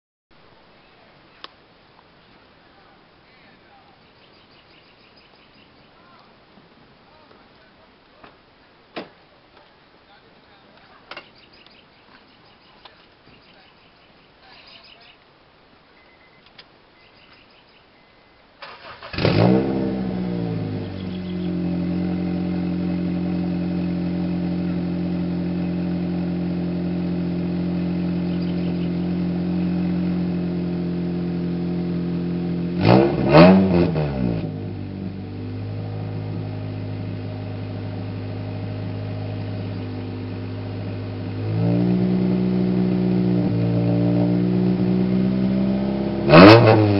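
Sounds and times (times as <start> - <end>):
faint clicks: 16.4 - 16.7
car engine starting and idling: 18.5 - 46.9
car engine revving: 18.6 - 46.9.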